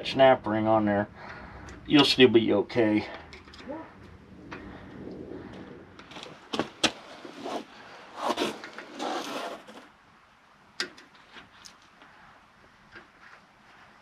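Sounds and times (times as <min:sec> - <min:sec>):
scraping rubs: 0:05.4 - 0:09.9.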